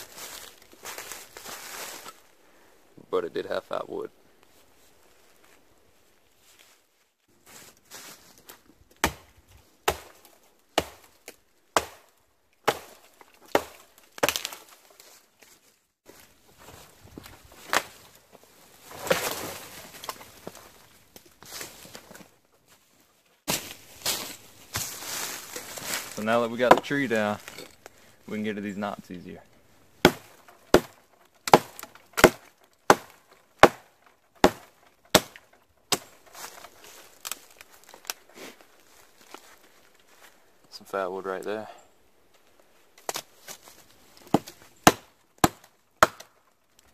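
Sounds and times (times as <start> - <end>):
hatchet chopping wood: 9.0 - 14.6, 30.0 - 36.1, 44.3 - 46.4
wood cracking: 9.0 - 15.2, 30.0 - 40.2.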